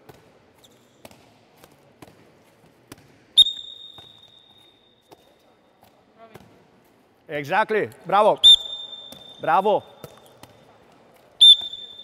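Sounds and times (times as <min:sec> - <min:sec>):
balls bouncing and slapping: 0:00.0 - 0:07.0, 0:08.9 - 0:12.0.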